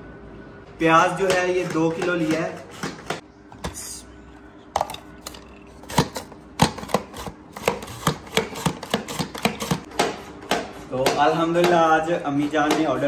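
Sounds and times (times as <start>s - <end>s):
mandoline slicing onions: 5.9s - 11.0s.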